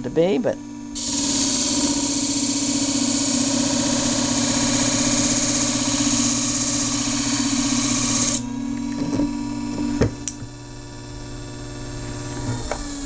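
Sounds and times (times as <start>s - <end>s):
motor hum: 0.0s - 13.0s
blade grinding on disc: 0.9s - 8.5s.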